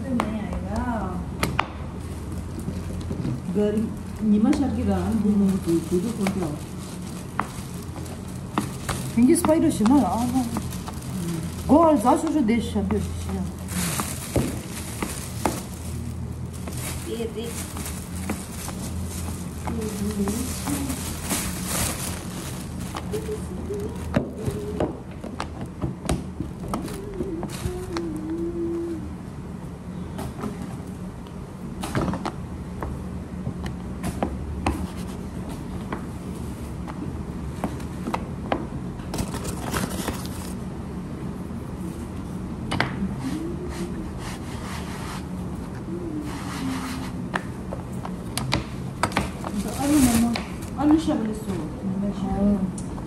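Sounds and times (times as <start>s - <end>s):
steady low hum: 0.0s - 53.0s
wavering hum: 26.7s - 29.8s
dough scraping: 43.2s - 45.6s.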